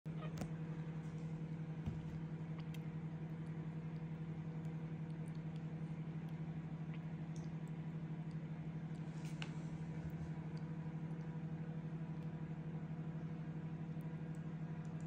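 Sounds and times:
pulsing mechanical hum: 0.1 - 15.0
faint small clicks: 2.1 - 9.6.

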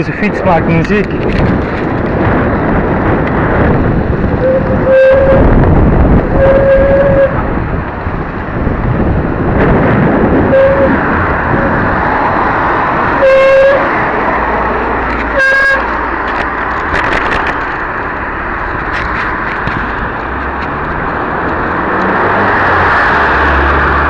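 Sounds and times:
wind and road noise: 0.0 - 24.0
horn toot: 4.4 - 5.5, 6.3 - 7.4, 10.5 - 11.0, 13.2 - 14.0, 15.3 - 15.9.

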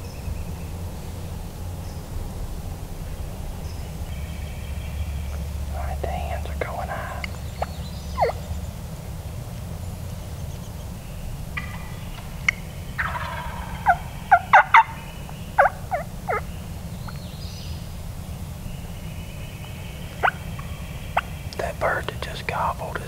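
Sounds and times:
turkey hens yelping: 4.4 - 9.2, 10.9 - 17.2, 19.6 - 22.0
turkey gobbling: 5.2 - 9.1, 11.5 - 17.2, 19.9 - 22.3.

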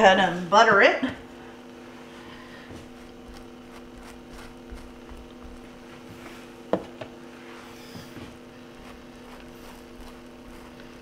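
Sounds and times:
steady hum: 0.0 - 11.0
knife scraping butter on bread: 2.9 - 5.7, 7.8 - 11.0.

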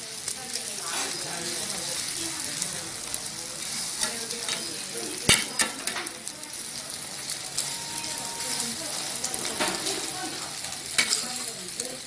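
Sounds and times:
rice sizzling in pan: 0.0 - 12.0
spatula scraping pan: 0.8 - 1.6, 7.6 - 10.4.

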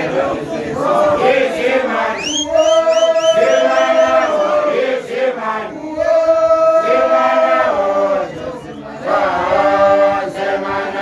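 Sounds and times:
male voices chanting: 0.0 - 11.0
high wavering vocal call: 2.1 - 4.9.

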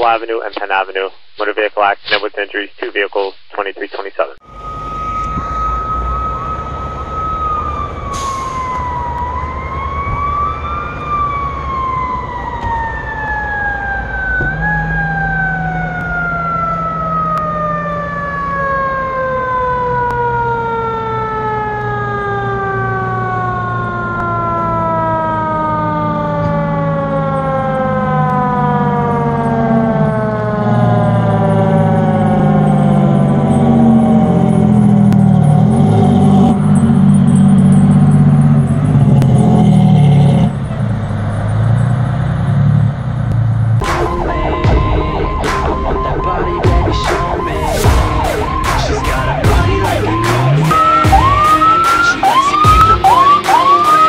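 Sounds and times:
mechanical fire siren winding down: 4.4 - 54.0
low steady drone: 43.8 - 54.0.

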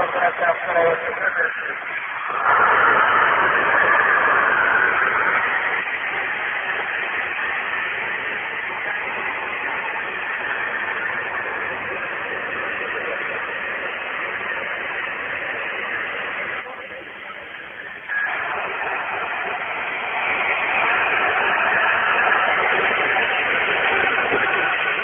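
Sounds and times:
radio static hiss: 0.0 - 25.0
short radio tone: 15.5 - 25.0.

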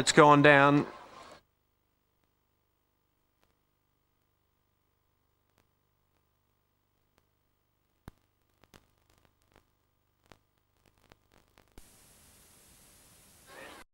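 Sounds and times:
faint clicks and crackles: 3.3 - 4.4, 5.4 - 13.5
static hiss: 5.3 - 13.9.

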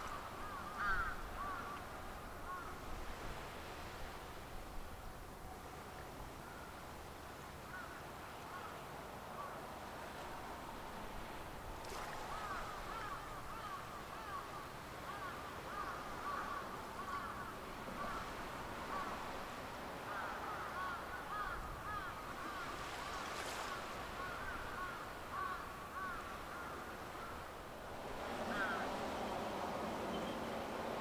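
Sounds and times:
flock of birds calling: 28.4 - 29.0.

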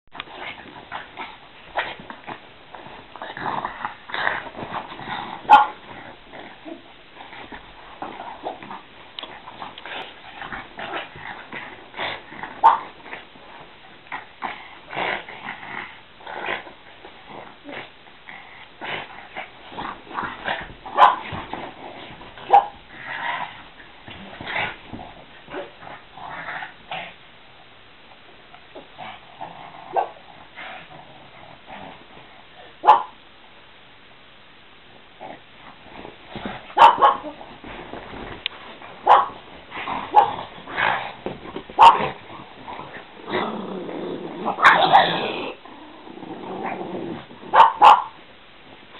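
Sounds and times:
dogs scuffling: 19.4 - 26.0, 35.6 - 43.6.

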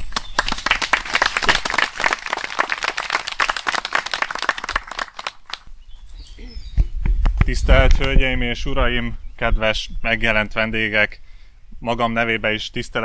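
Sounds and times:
small crowd applauding: 0.0 - 5.7.

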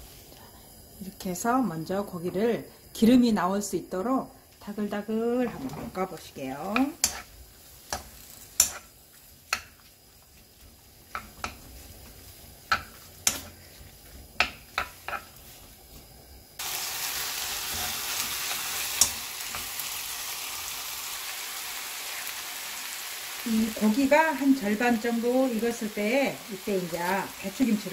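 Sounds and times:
meat sizzling in a frying pan: 5.0 - 27.9
spatula scraping a frying pan: 6.7 - 9.8, 14.7 - 15.7, 17.5 - 19.8.

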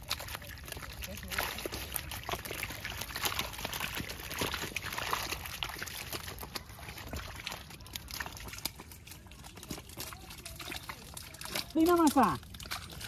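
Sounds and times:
fish slapping in a wet net: 0.0 - 13.0
water splashing and trickling: 0.0 - 13.0.

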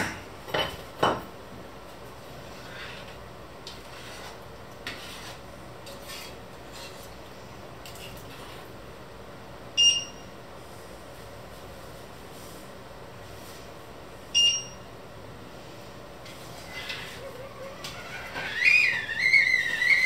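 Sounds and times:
spoon scraping in a pan: 2.5 - 7.1.

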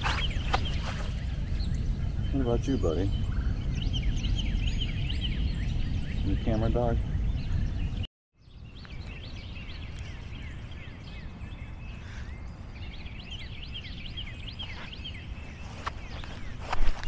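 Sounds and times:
steady low rumble: 0.0 - 8.1
small birds chirping: 0.0 - 17.0.

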